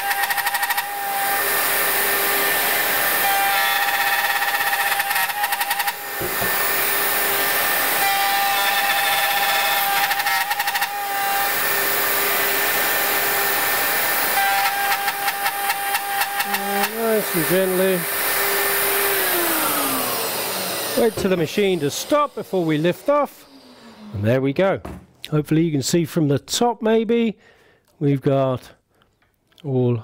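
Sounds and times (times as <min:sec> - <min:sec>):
router cutting wood: 0:00.0 - 0:24.6
router rattling judder: 0:12.6 - 0:24.2.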